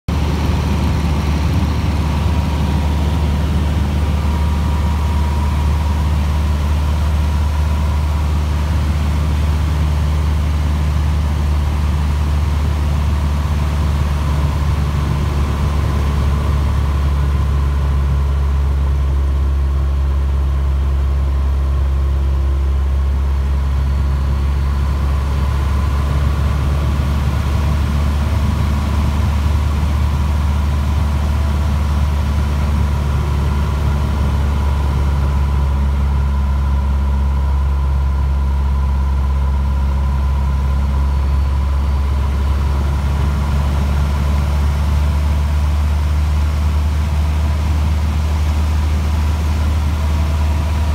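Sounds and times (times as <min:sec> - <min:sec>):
airplane engine droning: 0:00.1 - 0:50.9.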